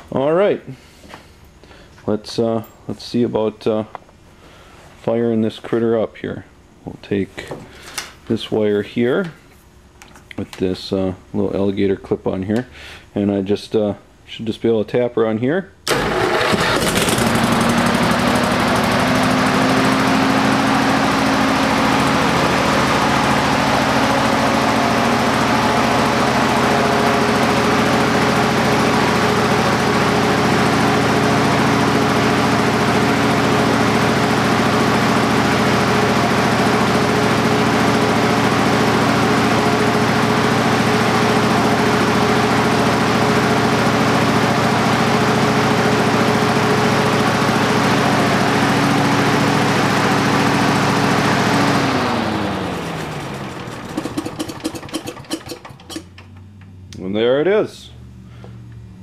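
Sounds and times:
engine running loud at high speed: 15.9 - 56.0.

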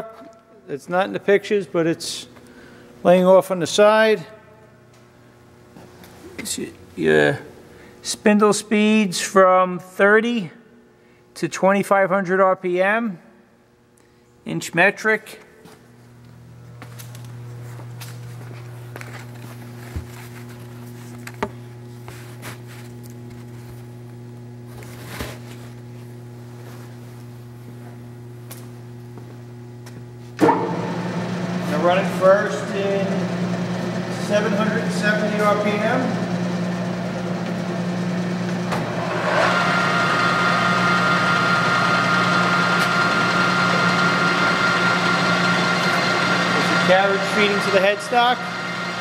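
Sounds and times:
low electrical hum: 0.0 - 49.0
steady whine of power feed: 15.1 - 49.0.

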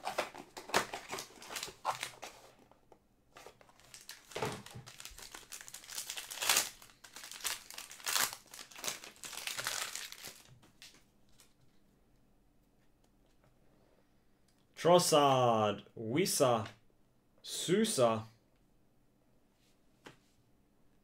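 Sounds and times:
foil wrapper crinkling and tearing: 0.0 - 2.3, 3.7 - 11.5.

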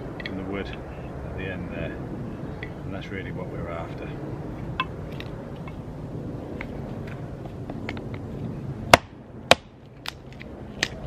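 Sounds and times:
hatchet chopping wood: 8.9 - 10.2.

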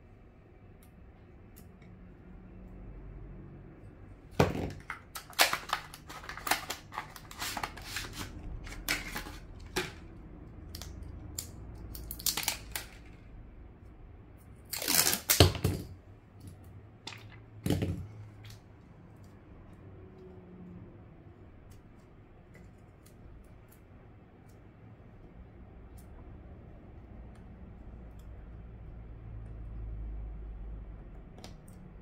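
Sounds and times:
plastic film crinkling and tearing: 4.8 - 10.1, 10.7 - 13.2, 14.7 - 15.7.

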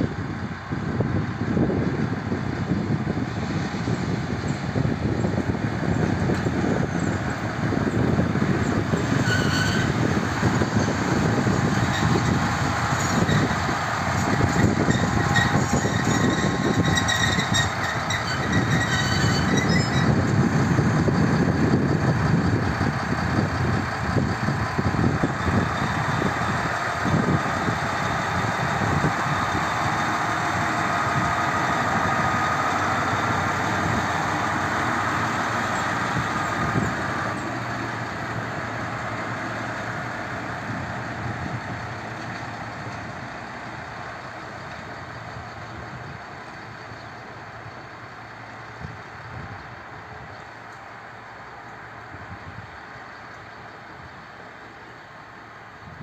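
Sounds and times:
diesel locomotive engine: 0.0 - 56.0
high squeal: 7.9 - 23.3, 24.1 - 40.1.

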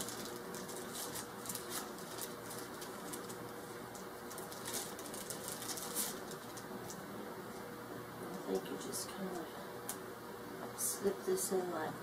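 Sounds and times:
packaging rustling and crinkling: 0.0 - 7.0.

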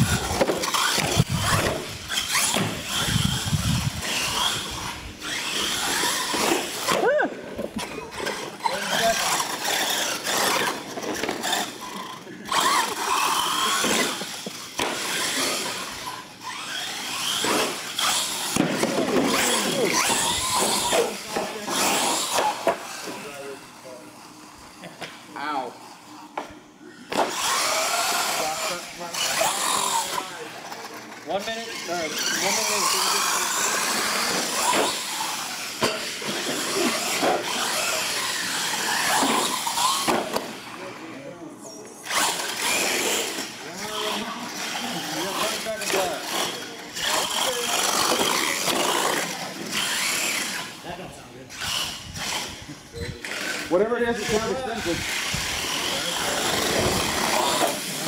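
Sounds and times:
tyres on concrete: 0.0 - 23.4
electric motors whining: 0.0 - 58.0.

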